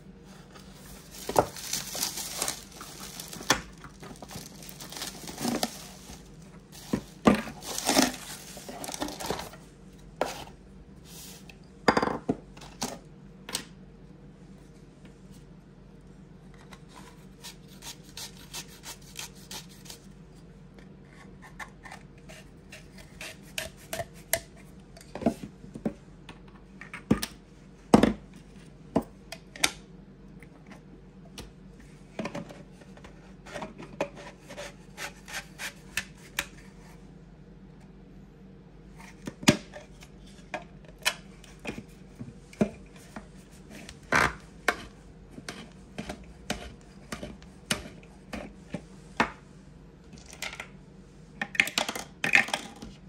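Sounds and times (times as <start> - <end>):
low steady hum: 0.0 - 53.0
bubble wrap crinkling: 0.7 - 9.6.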